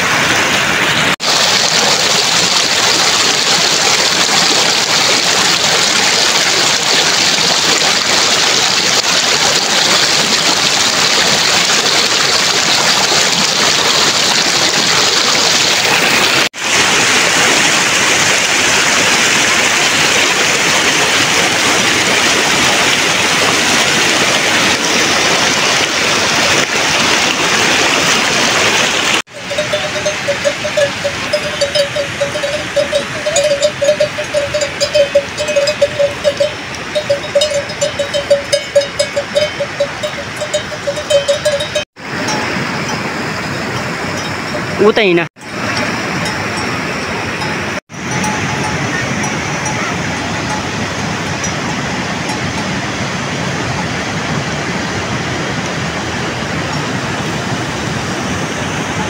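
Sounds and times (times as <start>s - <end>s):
cowbell clanking: 29.3s - 43.1s, 44.1s - 52.7s.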